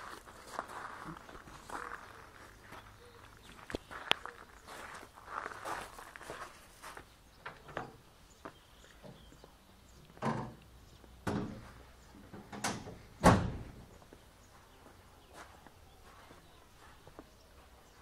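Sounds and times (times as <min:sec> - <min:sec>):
footsteps on gravel: 0:00.0 - 0:07.1, 0:14.0 - 0:18.0.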